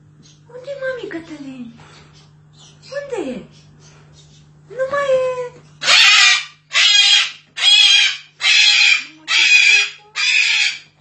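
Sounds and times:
cockatoo screeching: 0:05.8 - 0:10.9.

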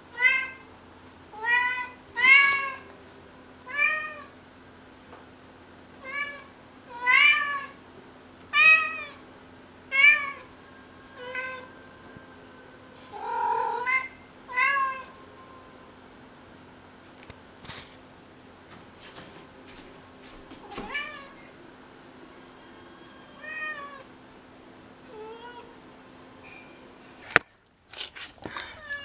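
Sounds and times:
cat meowing: 0:06.0 - 0:07.8, 0:13.1 - 0:15.1, 0:25.1 - 0:25.7, 0:28.8 - 0:29.0.

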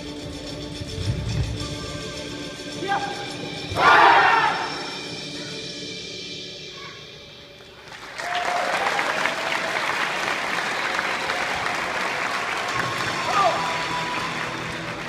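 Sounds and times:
background music: 0:00.0 - 0:15.0
audience applauding: 0:07.8 - 0:15.0.

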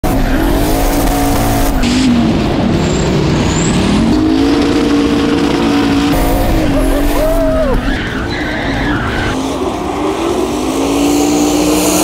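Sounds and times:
car engine running hard: 0:00.0 - 0:12.0.

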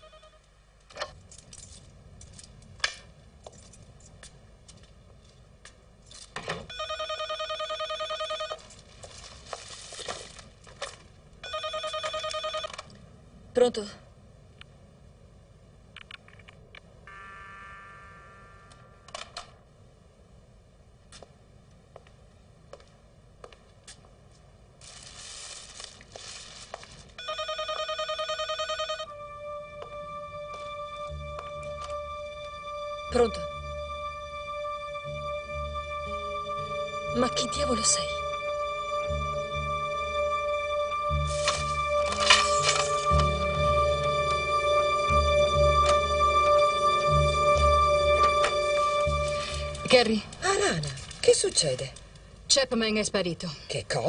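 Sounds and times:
telephone ringer trilling: 0:11.4 - 0:12.7
steady held tone: 0:17.0 - 0:19.1
rustling hiss: 0:24.7 - 0:27.2.

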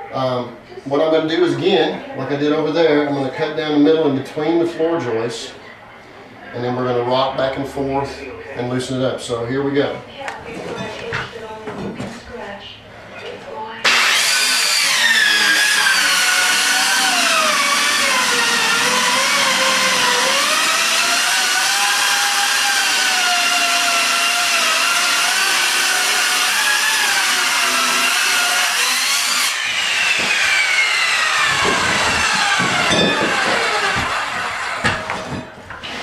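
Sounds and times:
saw blade spinning down: 0:13.8 - 0:35.1
circular saw cutting board: 0:13.9 - 0:36.0
knocks: 0:31.4 - 0:35.6.

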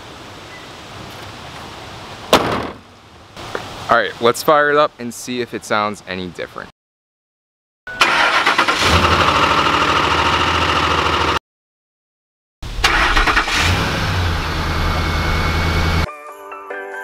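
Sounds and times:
engine cranking and starting: 0:08.0 - 0:11.4, 0:12.7 - 0:15.0.

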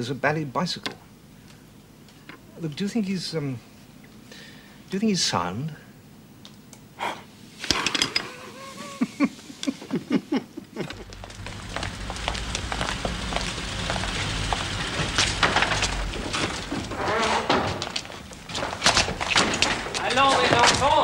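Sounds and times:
truck engine rumbling: 0:10.8 - 0:21.0.

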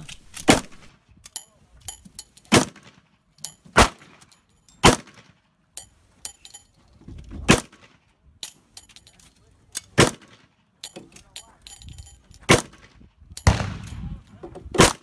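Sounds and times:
pistol shots: 0:13.4 - 0:14.2.

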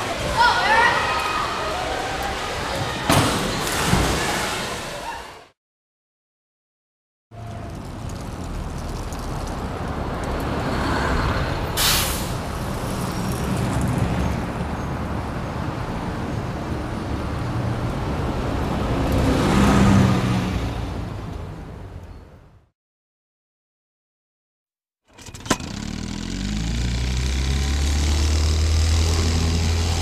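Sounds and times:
air brake hiss: 0:11.8 - 0:12.4
bus engine humming: 0:25.2 - 0:30.0.

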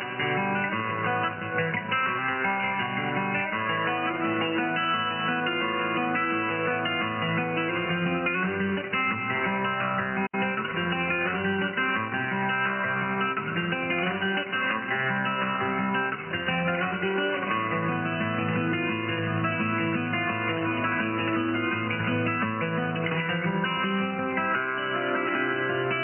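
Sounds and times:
strummed guitar over radio: 0:00.0 - 0:26.0.

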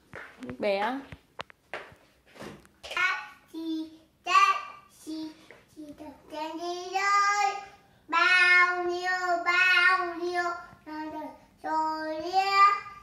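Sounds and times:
toddler boy singing: 0:02.9 - 0:13.0.

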